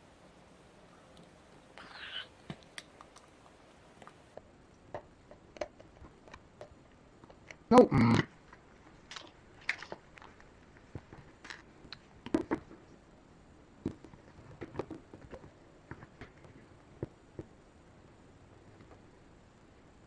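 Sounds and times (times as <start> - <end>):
hands handling plastic parts: 8.4 - 13.0.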